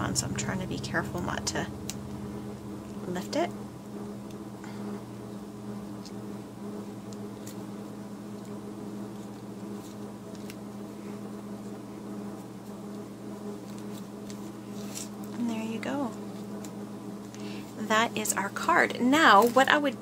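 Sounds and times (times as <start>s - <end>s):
low hum of held tones: 0.0s - 20.0s.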